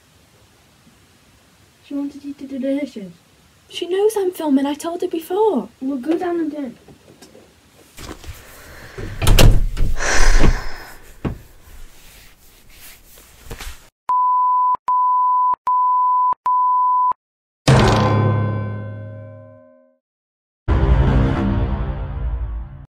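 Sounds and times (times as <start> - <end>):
thumps and rustling on microphone: 8.0 - 13.9.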